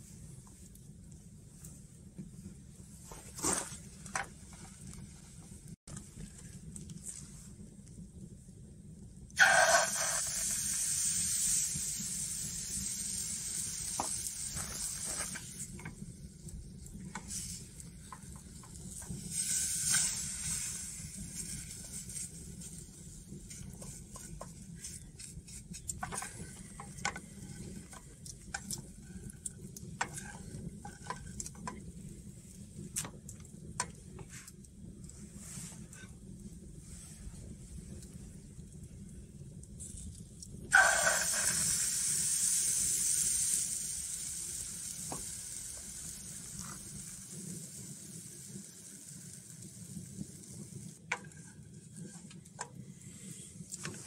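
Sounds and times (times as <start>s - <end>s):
batter sizzling in a hot pan: 9.2s - 54.0s
wooden spatula scraping a pan: 17.1s - 32.1s, 51.1s - 54.0s.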